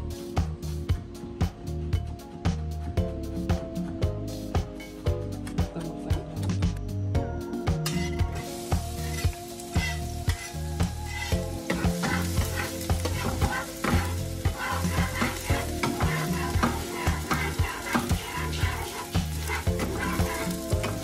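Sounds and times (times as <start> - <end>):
spatula scraping pan: 7.8 - 21.0
garlic sizzling in oil: 8.0 - 21.0.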